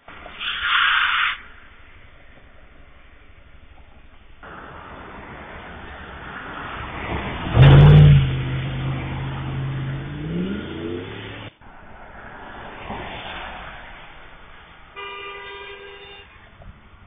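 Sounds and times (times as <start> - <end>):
car engine accelerating: 1.4 - 14.6.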